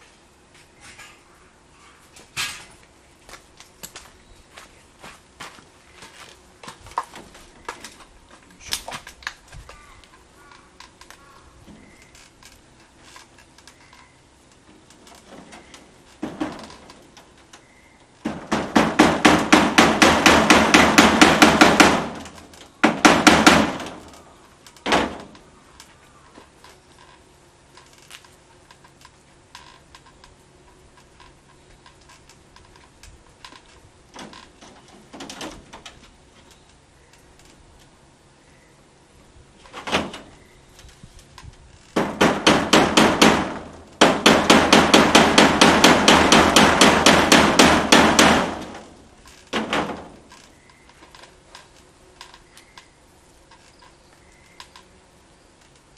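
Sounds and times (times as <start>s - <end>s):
knocking on plastic roof panel: 18.2s - 24.1s, 42.0s - 48.9s.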